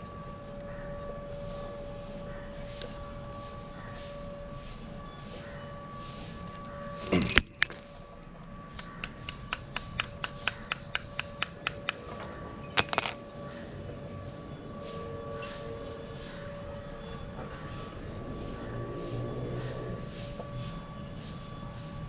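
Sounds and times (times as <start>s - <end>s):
metallic clinks and clatter: 7.0s - 7.8s, 12.6s - 13.2s.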